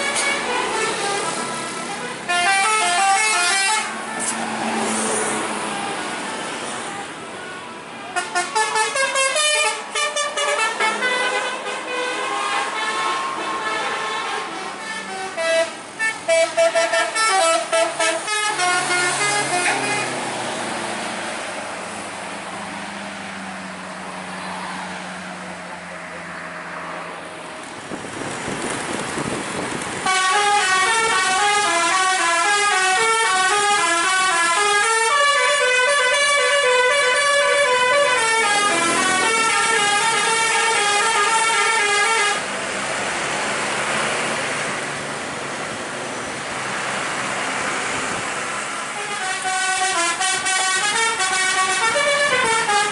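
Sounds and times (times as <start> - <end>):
multi-tone musical bus horn: 0.0 - 20.3, 30.0 - 42.5, 48.7 - 52.9
bus engine: 0.0 - 52.9
road noise: 0.0 - 52.9.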